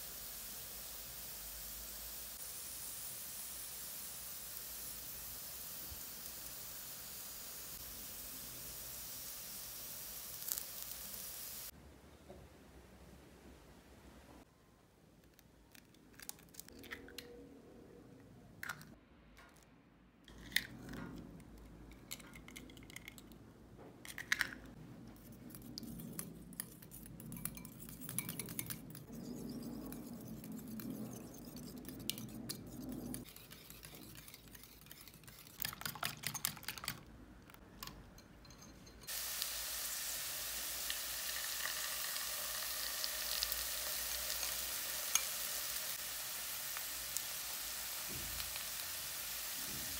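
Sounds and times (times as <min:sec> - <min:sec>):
potato frying in oil: 0:00.0 - 0:11.8, 0:39.1 - 0:49.9
eggs cracked against a bowl: 0:24.1 - 0:24.7
wire whisk clinking in a bowl: 0:26.0 - 0:37.0, 0:37.8 - 0:39.1.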